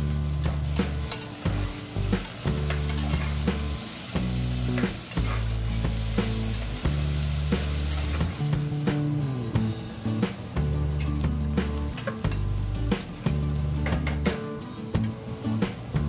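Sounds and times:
onions sizzling in hot oil: 0.0s - 16.0s
spoon scraping a pot: 5.1s - 5.5s.

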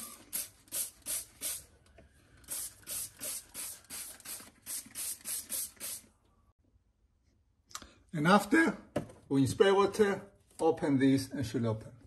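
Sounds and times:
spray bottle squirting water: 0.0s - 1.7s, 2.4s - 6.1s.

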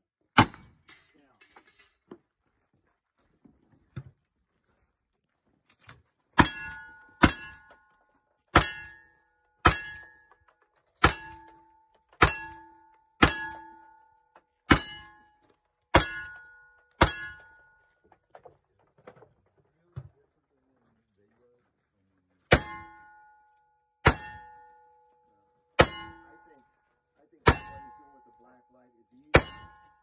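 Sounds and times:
steel target ringing: 6.4s - 7.8s, 8.5s - 10.3s, 11.0s - 17.8s, 22.5s - 26.6s, 27.4s - 30.0s.

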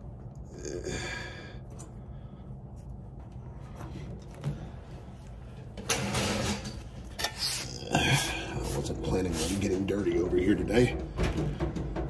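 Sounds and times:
low steady hum: 0.0s - 12.0s
person exhaling: 0.5s - 2.5s, 7.4s - 8.8s.

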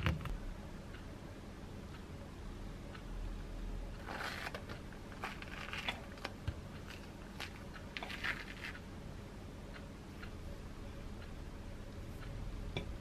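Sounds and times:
fruit rind tearing and crackling: 4.0s - 6.3s.

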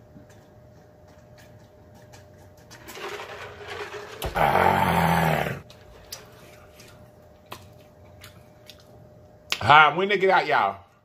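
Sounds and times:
gravelly throat sound: 4.4s - 5.6s.

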